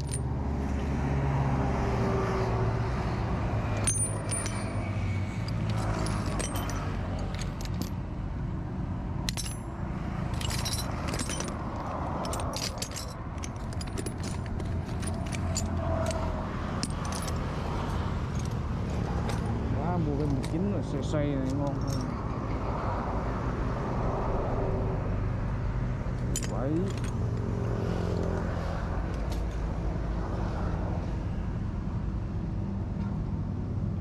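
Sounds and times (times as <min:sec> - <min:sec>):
small metal parts clinking: 0:00.0 - 0:00.2, 0:03.6 - 0:08.0, 0:09.2 - 0:22.2, 0:26.2 - 0:27.5.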